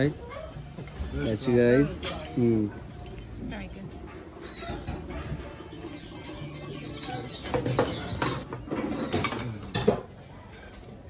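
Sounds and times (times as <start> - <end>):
ceramic bowls and spoons clinking: 0.8 - 3.5, 6.3 - 11.0
birds chirping: 4.4 - 8.7.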